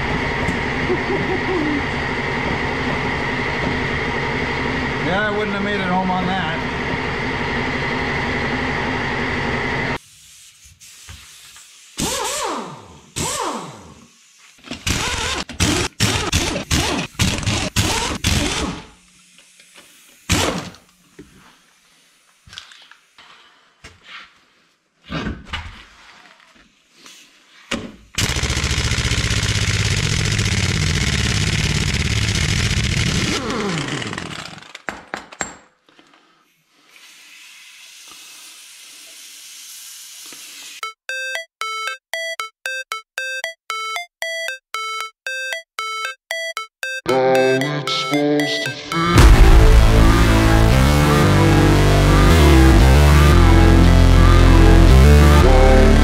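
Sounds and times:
mechanical running noise: 0:28.2 - 0:34.4.

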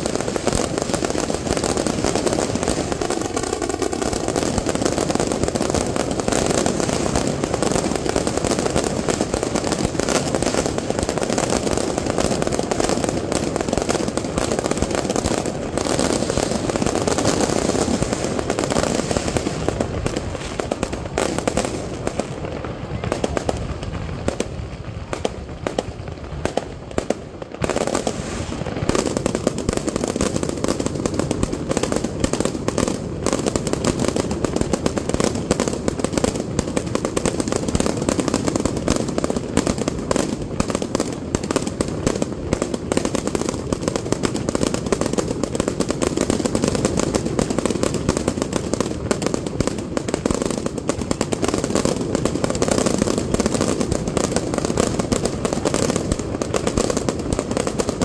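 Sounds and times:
fireworks bangs and crackling: 0:00.0 - 0:58.0.

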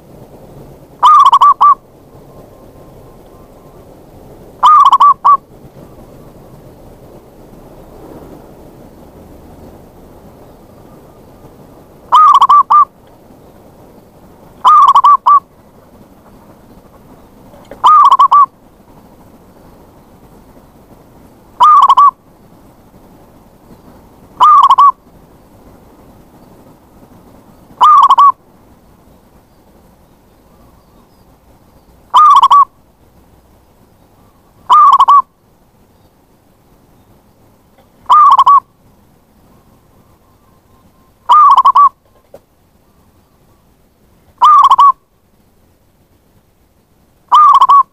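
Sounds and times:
dove cooing: 0:01.0 - 0:01.8, 0:04.6 - 0:05.4, 0:12.1 - 0:12.9, 0:14.6 - 0:15.4, 0:17.5 - 0:18.5, 0:21.6 - 0:22.2, 0:24.4 - 0:25.0, 0:27.8 - 0:28.4, 0:32.1 - 0:32.7, 0:34.7 - 0:35.3, 0:37.8 - 0:38.6, 0:41.3 - 0:42.3, 0:44.4 - 0:45.0, 0:47.3 - 0:47.9.

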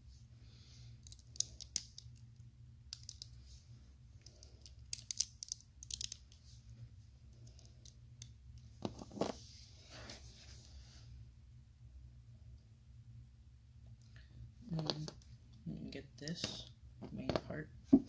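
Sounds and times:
faint low hum: 0:00.0 - 0:18.0
plastic bricks clicking: 0:02.9 - 0:03.4, 0:04.3 - 0:06.4.

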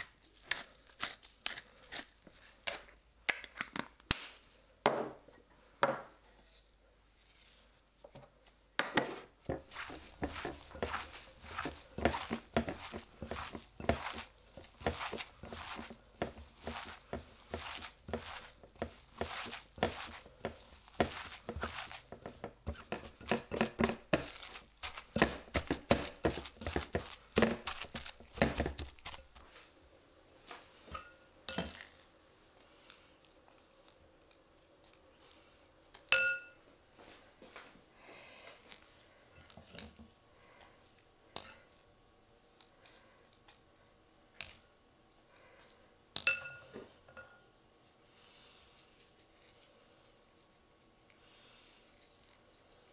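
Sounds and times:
hand squishing filling in bowl: 0:09.6 - 0:29.6.

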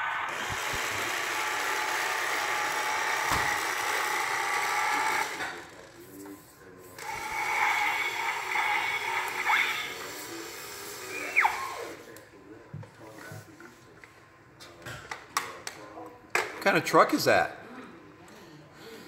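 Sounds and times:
toy motor and gears whirring: 0:07.0 - 0:12.0.

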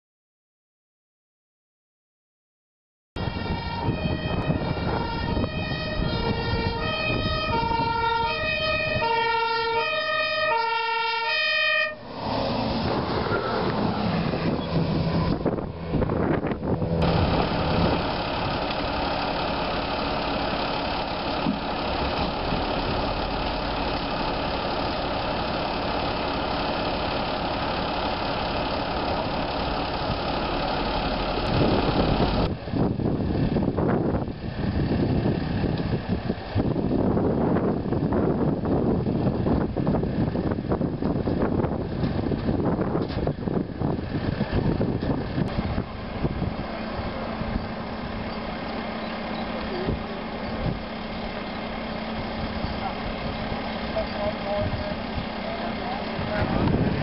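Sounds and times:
two-tone fire engine siren: 0:03.2 - 0:32.5, 0:45.6 - 0:57.0
outdoor noise: 0:03.2 - 0:57.0
vehicle engine running: 0:12.0 - 0:57.0.

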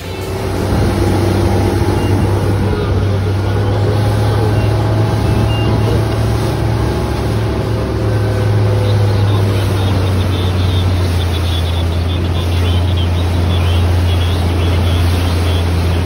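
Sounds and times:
boat engine low drone: 0:00.0 - 0:16.0
water splashing along hull: 0:00.0 - 0:16.0.

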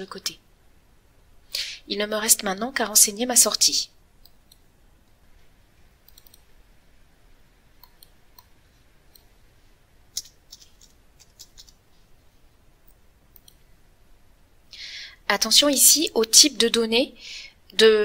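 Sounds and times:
computer mouse clicks: 0:04.2 - 0:05.2, 0:06.0 - 0:06.6, 0:07.8 - 0:09.3, 0:10.1 - 0:11.8, 0:12.8 - 0:13.7
keyboard key presses: 0:10.1 - 0:11.8.

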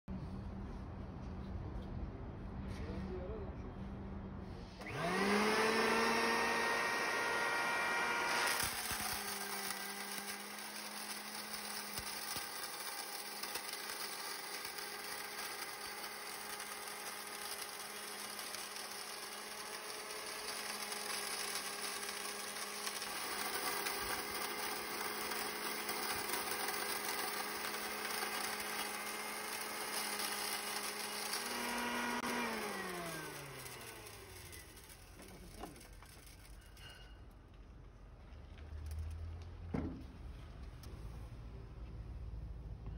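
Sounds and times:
motor winding down whine: 0:04.8 - 0:36.2
electric grain mill humming: 0:04.8 - 0:36.8.

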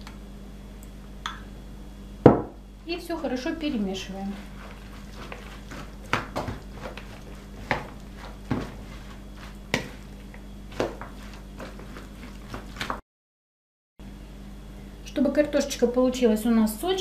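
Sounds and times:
steady low hum: 0:00.0 - 0:13.0
hands mixing food in bowl: 0:03.3 - 0:13.0.

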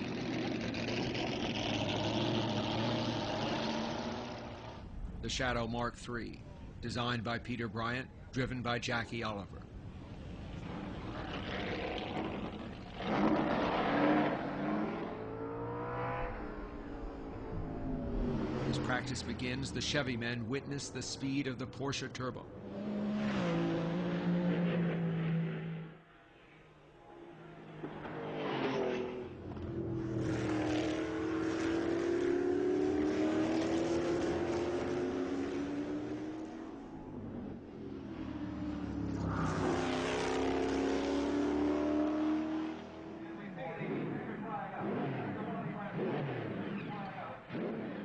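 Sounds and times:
race car engine revving: 0:00.0 - 0:04.9, 0:10.4 - 0:21.3, 0:22.6 - 0:26.0, 0:27.6 - 0:48.0.

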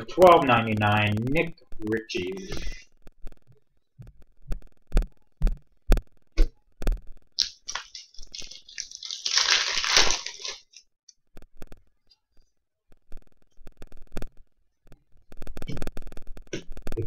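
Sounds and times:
wrapper crinkling: 0:07.4 - 0:10.9.

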